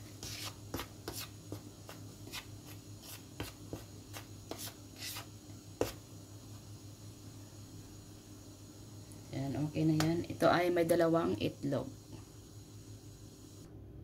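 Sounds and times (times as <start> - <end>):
fingers stirring dry flour: 0.0 - 6.1.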